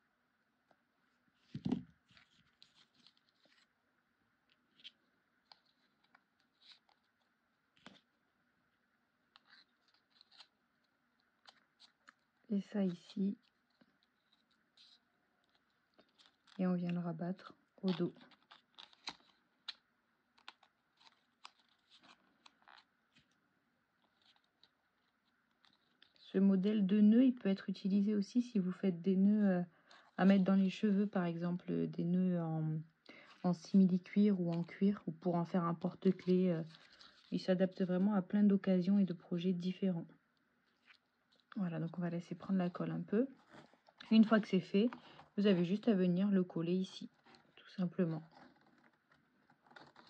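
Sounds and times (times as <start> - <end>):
paper rustling and crinkling: 1.4 - 3.8, 4.5 - 8.1, 9.3 - 23.4, 24.0 - 26.4, 35.7 - 38.2, 40.6 - 46.0, 47.0 - 50.0.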